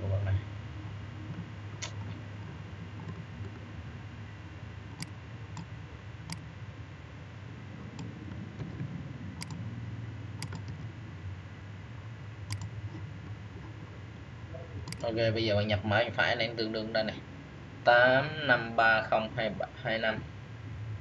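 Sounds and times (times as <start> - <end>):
low steady hum: 0.0 - 21.0
computer mouse clicking: 4.9 - 6.5, 9.4 - 9.6, 10.4 - 10.9, 12.5 - 12.7, 14.8 - 15.1.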